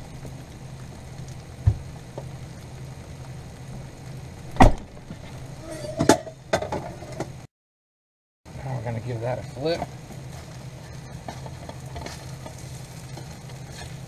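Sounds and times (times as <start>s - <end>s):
cheese sizzling in a pan: 0.0s - 7.2s, 8.5s - 14.0s
low steady hum: 0.0s - 7.4s.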